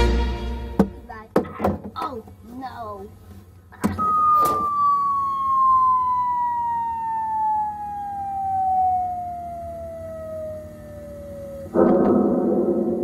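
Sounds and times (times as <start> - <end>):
long falling whistle: 4.0 - 11.8.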